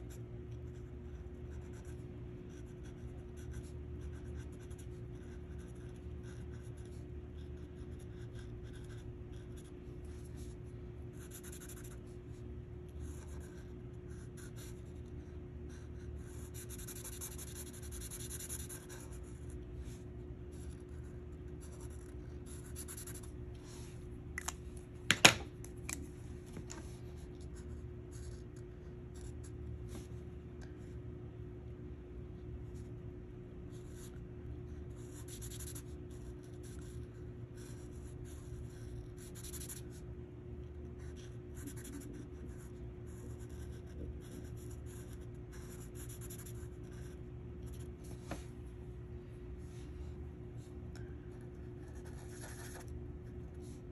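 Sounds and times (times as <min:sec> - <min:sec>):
marker scratching on paper: 0:00.0 - 0:23.9, 0:34.9 - 0:39.9, 0:41.0 - 0:48.4, 0:51.8 - 0:53.9.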